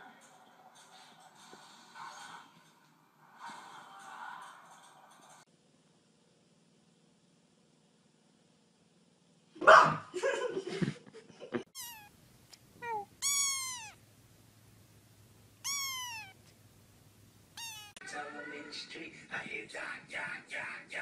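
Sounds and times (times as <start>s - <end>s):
kitten mewing: 11.7s - 12.2s, 12.8s - 14.0s, 15.6s - 16.5s, 17.5s - 18.0s.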